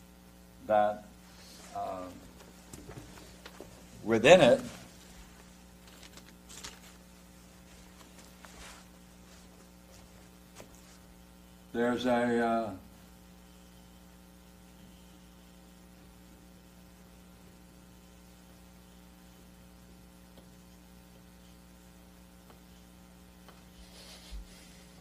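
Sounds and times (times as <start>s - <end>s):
electrical mains hum: 0.0s - 25.0s
faint hiss: 0.6s - 5.8s, 6.6s - 25.0s
soft rustle: 4.6s - 11.2s.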